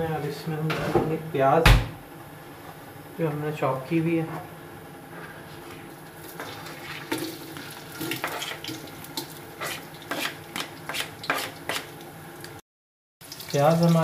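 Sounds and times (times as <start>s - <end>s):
onions sizzling in oil: 6.1s - 12.6s, 13.2s - 14.0s
knife scraping cutting board: 8.2s - 8.6s, 9.6s - 11.9s.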